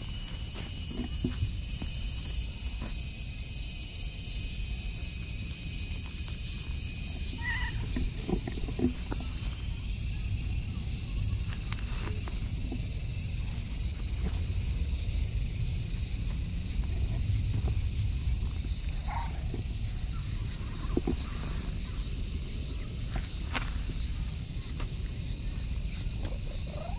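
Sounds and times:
insect chorus buzzing: 0:00.0 - 0:26.9
cat meowing faintly: 0:07.4 - 0:08.0.

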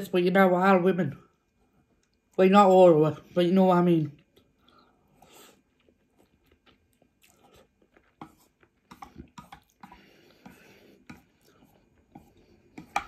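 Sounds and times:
chewing noodles: 0:04.2 - 0:13.0.

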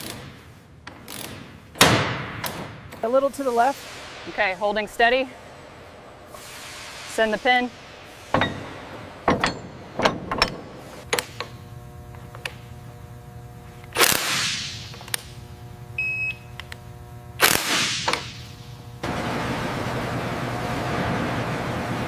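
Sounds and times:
machine hum: 0:00.0 - 0:22.0
bursts of hiss: 0:06.3 - 0:08.4.

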